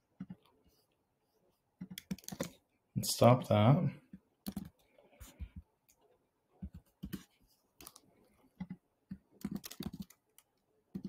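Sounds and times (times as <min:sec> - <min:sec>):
computer keyboard keystrokes: 0:01.8 - 0:02.5, 0:04.4 - 0:04.8, 0:09.4 - 0:11.0.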